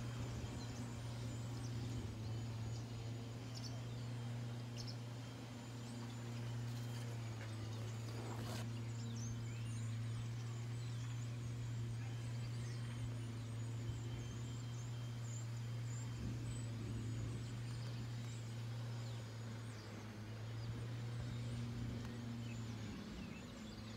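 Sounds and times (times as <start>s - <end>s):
steady low hum: 0.0s - 23.9s
brief rustle: 8.0s - 8.7s.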